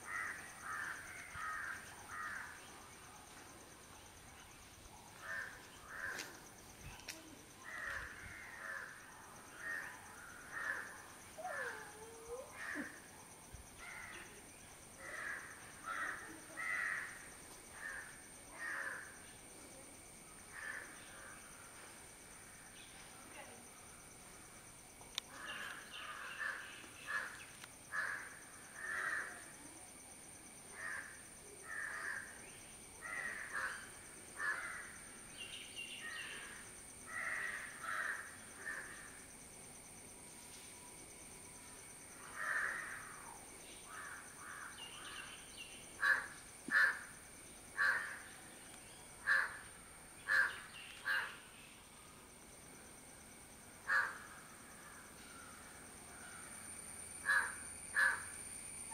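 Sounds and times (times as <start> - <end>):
crows cawing: 0.1 - 2.5, 5.2 - 6.3, 10.5 - 10.9, 25.4 - 29.3, 34.4 - 34.9, 37.1 - 38.9, 42.4 - 43.1, 46.0 - 47.1, 47.8 - 48.2, 49.2 - 49.6, 50.3 - 51.4, 53.8 - 54.3, 57.2 - 58.2.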